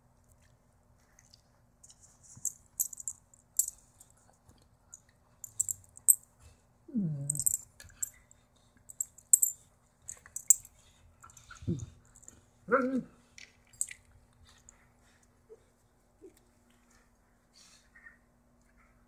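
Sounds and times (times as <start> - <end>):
dog growl: 12.7 - 13.2.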